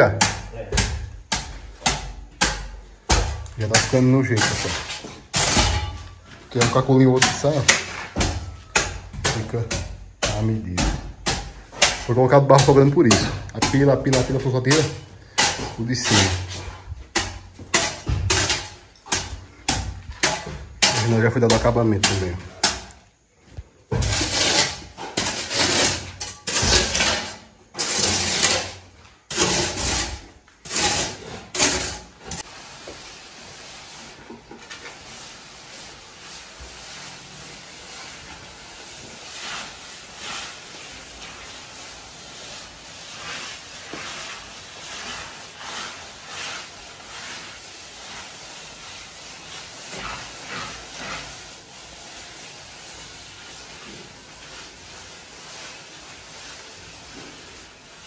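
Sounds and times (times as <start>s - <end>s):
hand float scraping cement: 0.7s - 58.0s
steady hiss: 32.1s - 58.0s.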